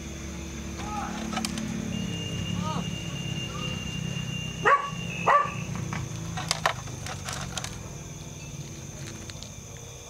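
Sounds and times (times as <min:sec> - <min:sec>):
dog barking: 0:04.6 - 0:05.7.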